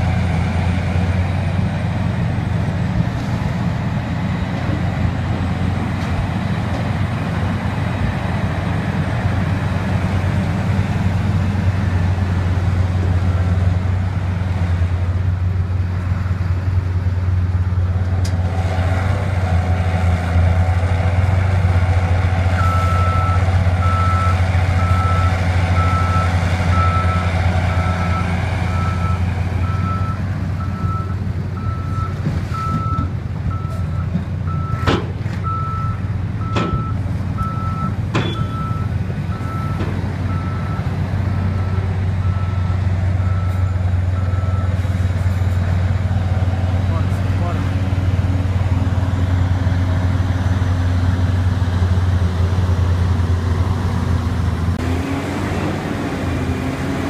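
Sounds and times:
heavy diesel engines humming: 0:00.0 - 0:57.0
truck reversing alarm beeping: 0:15.7 - 0:16.9, 0:22.5 - 0:45.6.

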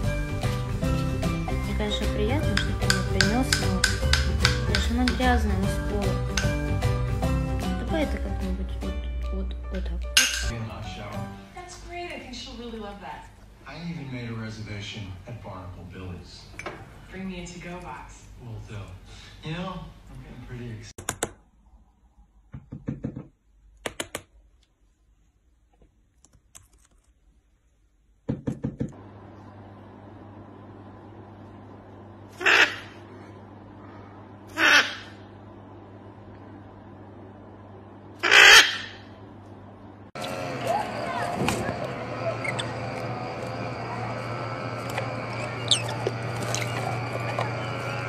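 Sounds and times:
steady low hum: 0:28.9 - 0:48.0.

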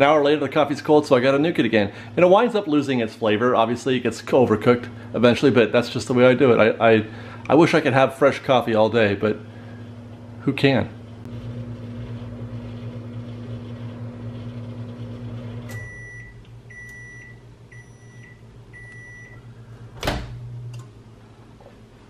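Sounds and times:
microwave oven humming: 0:01.2 - 0:22.0
microwave shutting off click: 0:11.2 - 0:21.0.

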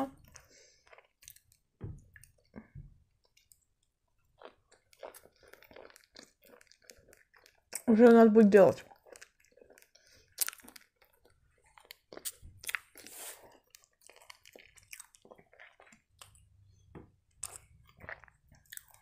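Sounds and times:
chewing food: 0:00.1 - 0:19.0
sip from a cup: 0:13.0 - 0:13.4.

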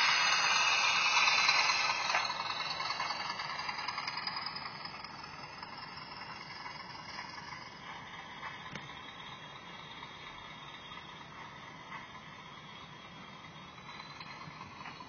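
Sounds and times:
locomotive motor: 0:00.0 - 0:15.0
model train wheels rolling on track: 0:00.0 - 0:15.0.

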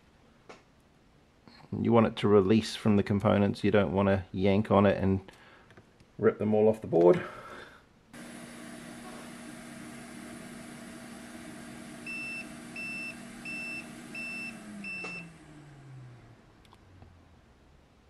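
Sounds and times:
fan humming: 0:08.1 - 0:17.5.

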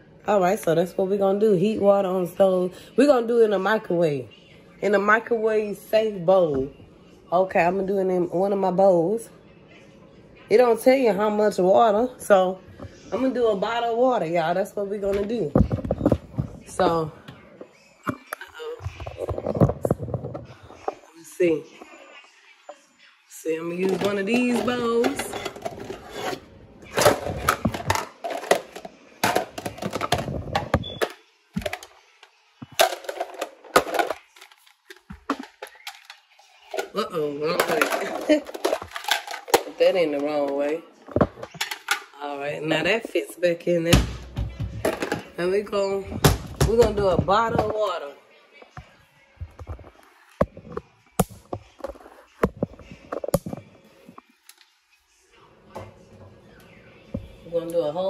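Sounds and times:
bowls knocking and clinking: 0:23.7 - 0:32.0, 0:32.6 - 0:43.2, 0:43.9 - 0:48.1.

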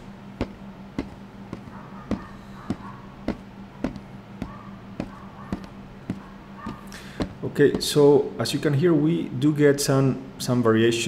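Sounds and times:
low steady hum: 0:00.0 - 0:11.0
boot footsteps on wooden floor: 0:00.4 - 0:08.0.

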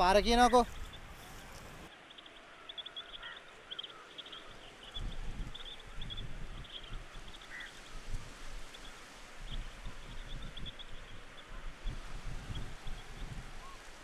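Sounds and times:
small birds chirping: 0:00.0 - 0:08.0
low wind rumble: 0:09.4 - 0:13.9.

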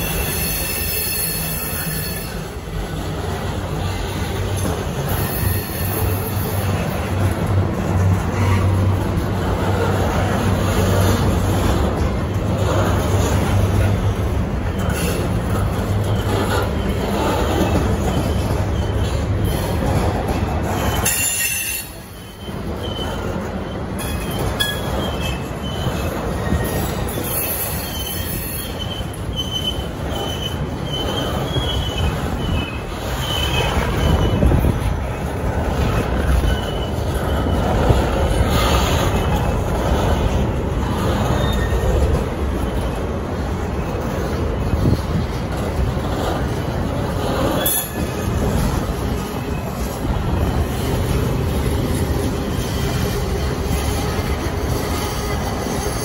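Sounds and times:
high-pitched wheel squeal: 0:00.0 - 0:02.5, 0:05.0 - 0:06.5, 0:20.8 - 0:34.8, 0:35.8 - 0:39.6, 0:40.9 - 0:42.9, 0:47.4 - 0:48.3
freight train rumbling past: 0:00.0 - 0:56.0.

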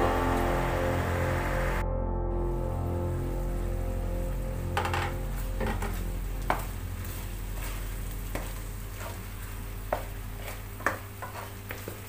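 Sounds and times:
food sizzling in a pan: 0:03.2 - 0:12.0
wooden spatula stirring: 0:05.6 - 0:12.0.

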